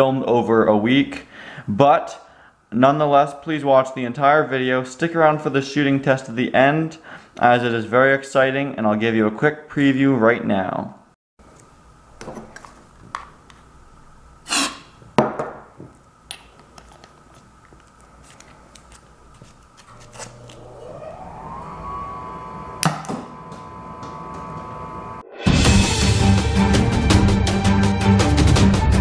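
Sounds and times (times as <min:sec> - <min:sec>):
rising steady tone: 0:19.9 - 0:27.8.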